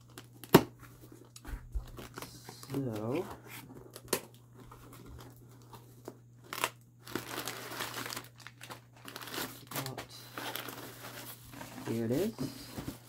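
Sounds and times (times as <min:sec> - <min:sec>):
packing paper crinkling: 0:03.8 - 0:13.0.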